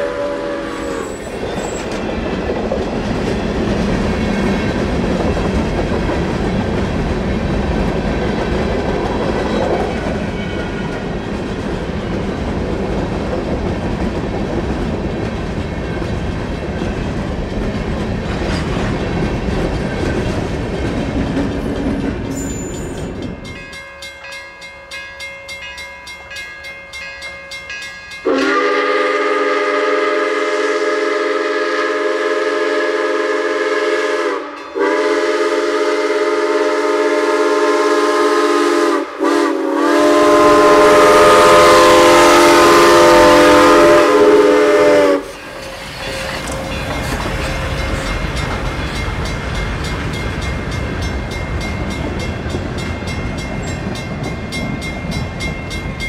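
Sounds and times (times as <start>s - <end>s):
steam locomotive whistle: 0.0s - 2.0s, 28.2s - 48.1s
freight train rolling past: 0.0s - 56.0s.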